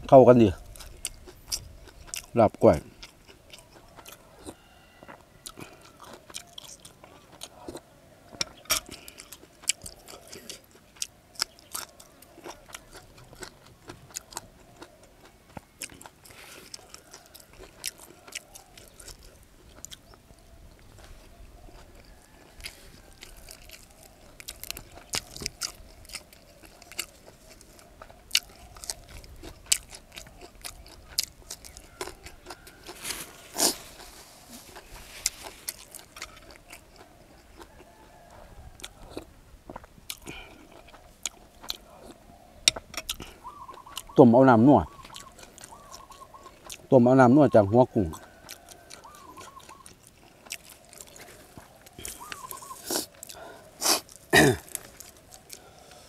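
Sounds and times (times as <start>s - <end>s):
person chewing crunchy food: 0.0s - 56.0s.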